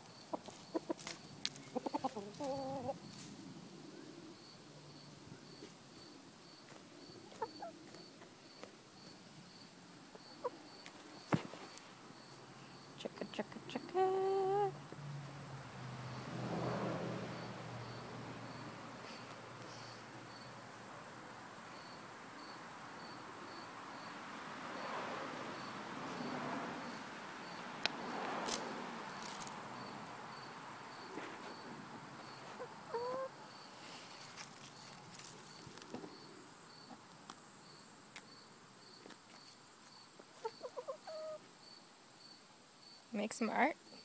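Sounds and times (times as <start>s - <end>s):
insect chirping: 0.0s - 14.9s, 15.8s - 44.0s
chicken calling: 0.3s - 3.0s, 32.4s - 33.5s, 40.4s - 41.5s.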